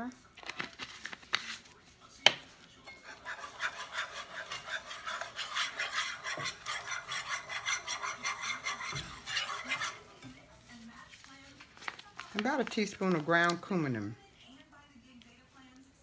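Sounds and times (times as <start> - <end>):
whisk scraping a pan: 2.8 - 14.0.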